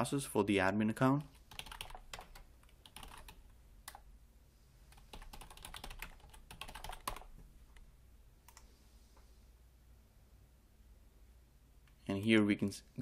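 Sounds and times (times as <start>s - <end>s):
computer keyboard typing: 1.2s - 4.1s, 4.9s - 7.8s.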